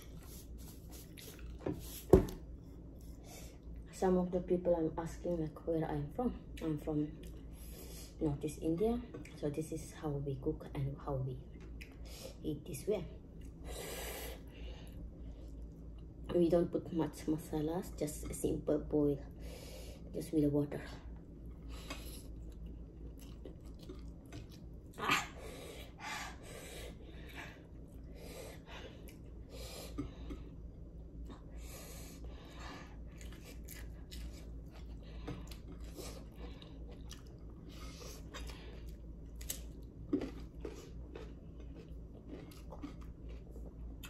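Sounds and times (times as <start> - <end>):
person chewing food: 0.0 - 3.8, 21.4 - 25.1, 26.8 - 31.6, 32.2 - 44.0.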